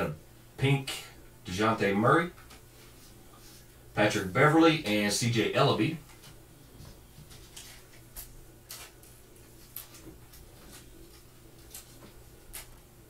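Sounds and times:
steady low hum: 0.0s - 13.0s
plastic wrapper crinkling: 7.4s - 12.8s.

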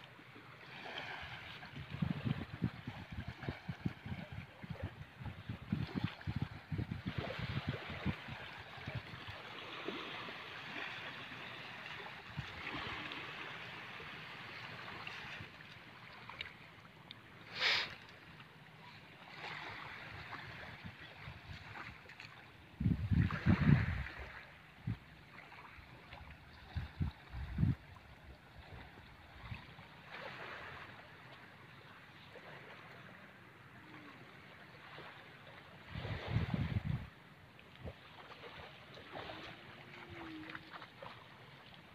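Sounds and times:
shallow water washing: 0.0s - 41.9s
wind buffeting microphone: 1.7s - 9.2s, 22.8s - 25.0s, 26.5s - 28.1s, 35.9s - 37.1s.

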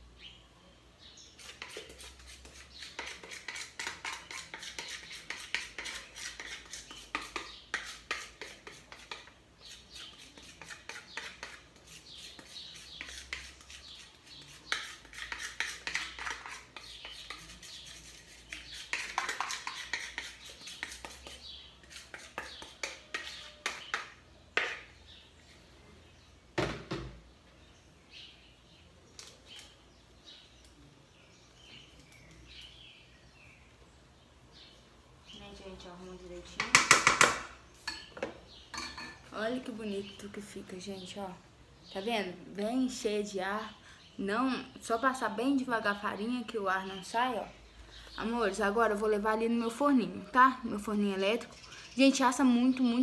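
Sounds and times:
spoon scraping and tapping bowl: 1.4s - 13.8s, 14.5s - 17.8s, 18.4s - 24.9s, 36.6s - 39.2s.

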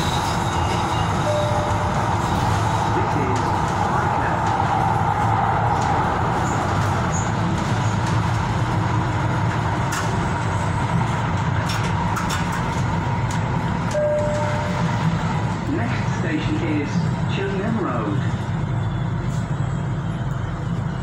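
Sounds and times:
train rumbling on rails: 0.0s - 21.0s.

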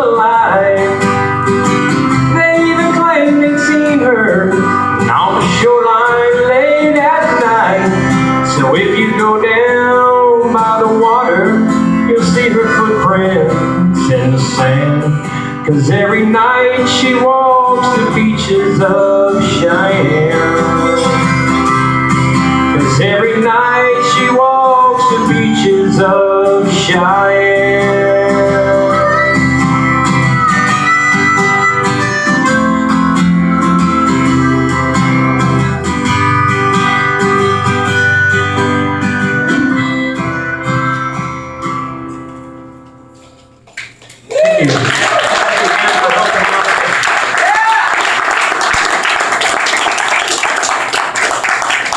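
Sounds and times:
man singing: 0.0s - 1.4s, 2.0s - 30.0s
acoustic guitar strumming: 0.0s - 43.8s.

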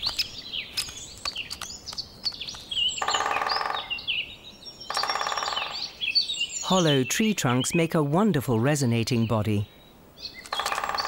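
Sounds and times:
woodpecker drumming on trunk: 0.0s - 4.1s, 4.9s - 6.0s, 10.4s - 11.0s
small birds chirping: 0.0s - 11.0s.

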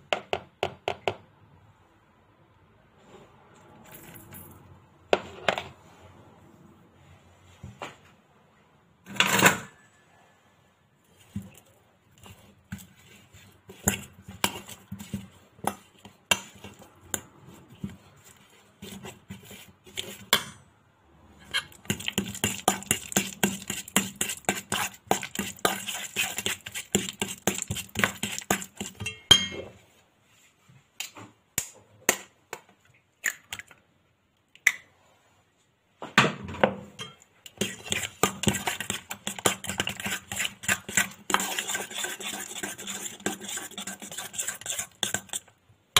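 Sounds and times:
fork scraping a metal bowl: 12.2s - 17.3s, 21.4s - 29.3s, 37.0s - 45.5s.

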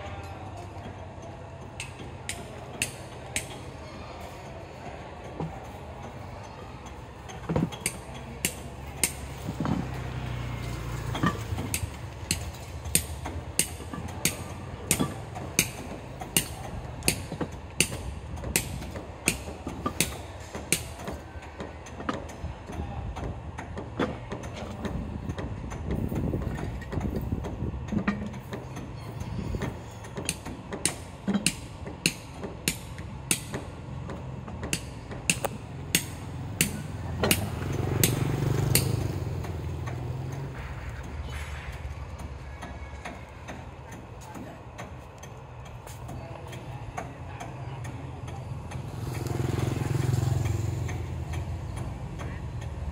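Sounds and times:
hammering: 11.0s - 22.4s, 29.6s - 45.0s.

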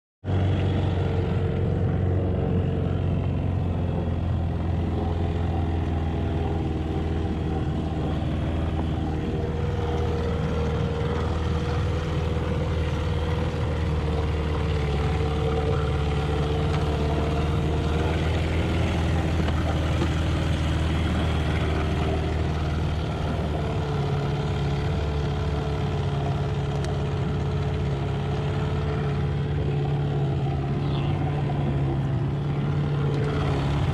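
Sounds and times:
outboard motor idling: 0.2s - 33.9s.

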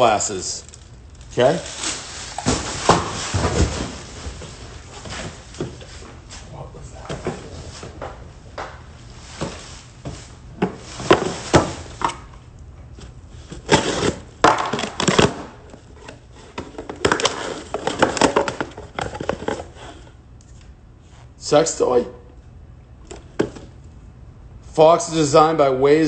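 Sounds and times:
cardboard boxes knocking and rustling: 2.4s - 6.0s, 9.3s - 12.2s, 16.5s - 19.7s.

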